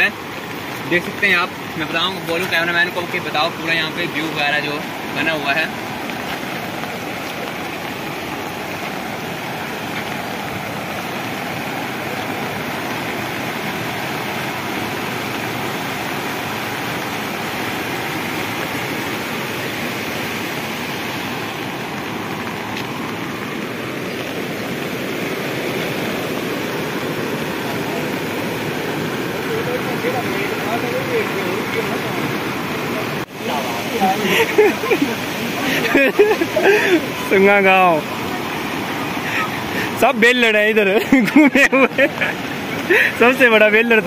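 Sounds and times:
river rushing over rocks: 0.0s - 44.0s.

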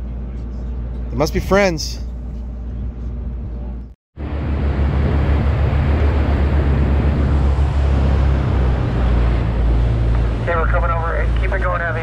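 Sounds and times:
boat engines droning: 0.0s - 12.0s
rush of wind and water: 4.2s - 12.0s.

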